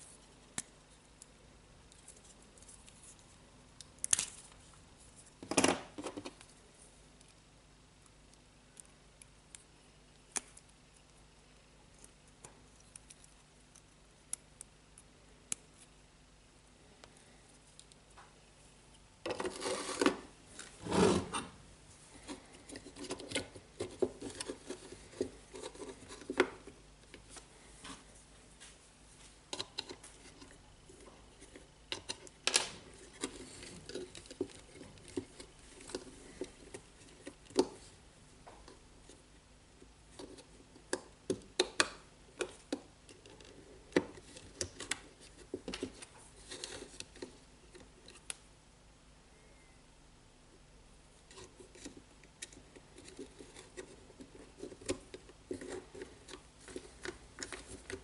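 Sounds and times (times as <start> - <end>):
plastic parts clicking and rubbing: 29.5 - 37.8, 51.3 - 58.0.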